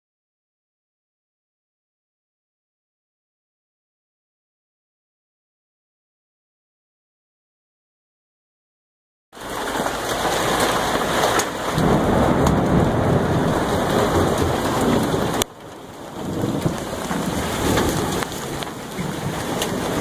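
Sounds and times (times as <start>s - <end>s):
hail and heavy rain on roof: 9.4s - 20.0s
hailstones ticking: 9.4s - 20.0s.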